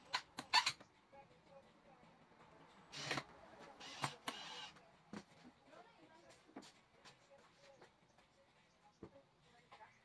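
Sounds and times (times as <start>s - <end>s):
cordless drill driving screw: 2.9s - 4.8s.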